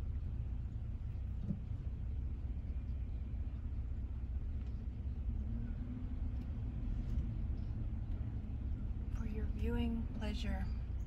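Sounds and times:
engine rumbling: 0.0 - 11.0.

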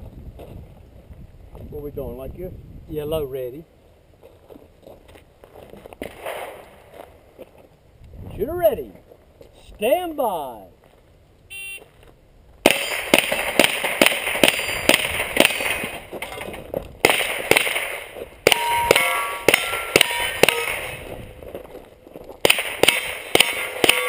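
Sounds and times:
rapid rifle shots: 12.6 - 16.1, 17.0 - 21.1, 22.4 - 24.0
steel targets clanging: 17.8 - 21.1, 22.7 - 24.0.

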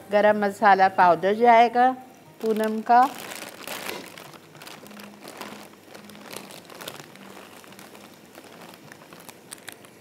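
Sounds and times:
plastic packets crinkling: 2.4 - 10.0.

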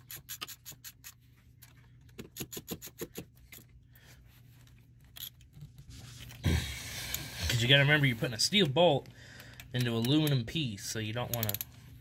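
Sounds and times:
ratchet wrench clicking: 0.0 - 1.2, 2.2 - 3.2.

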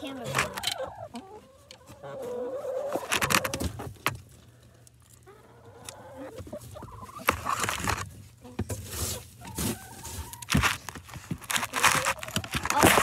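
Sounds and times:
hens murmuring: 0.0 - 13.0.

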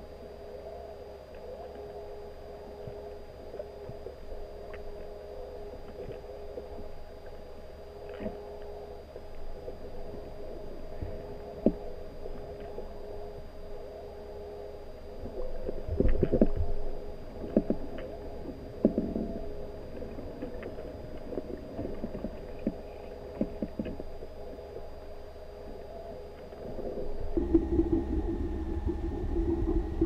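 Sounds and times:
steady hum: 0.0 - 30.0
underwater rumble of moving water: 0.0 - 30.0
underwater knocks and clicks: 17.4 - 18.1, 20.3 - 24.1, 27.3 - 30.0.

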